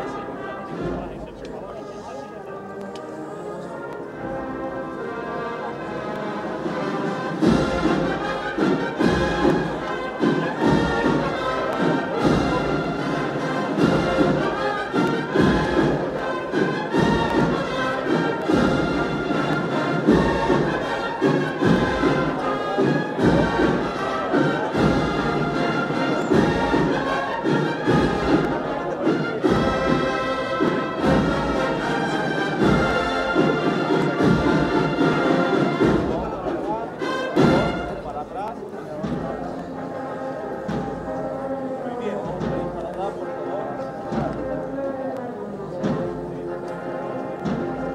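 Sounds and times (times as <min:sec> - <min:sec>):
brass band playing a march: 0:00.0 - 0:47.9
steady drum beat: 0:06.6 - 0:39.6, 0:42.2 - 0:42.9.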